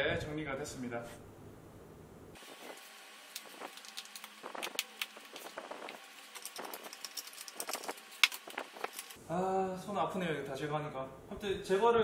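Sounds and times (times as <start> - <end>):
staples being pried out: 3.3 - 9.2.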